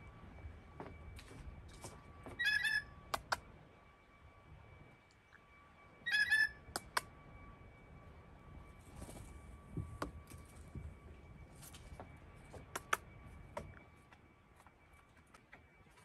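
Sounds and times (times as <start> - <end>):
blue jay bell-like call: 2.4 - 2.9, 6.0 - 6.6
sharp clicks: 12.7 - 13.1.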